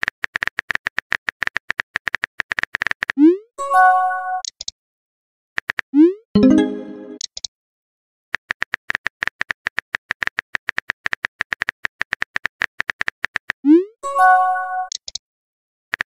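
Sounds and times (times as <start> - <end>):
chiming tone: 6.4 - 7.2.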